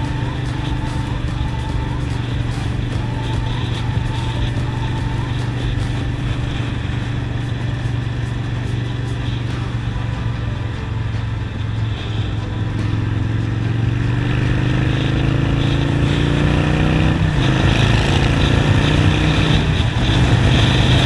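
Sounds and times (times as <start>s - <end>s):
motorcycle engine cruising: 0.0s - 21.0s.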